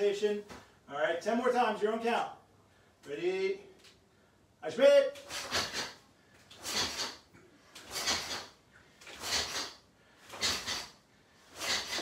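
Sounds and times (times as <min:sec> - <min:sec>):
sharp breaths: 0:05.2 - 0:12.0.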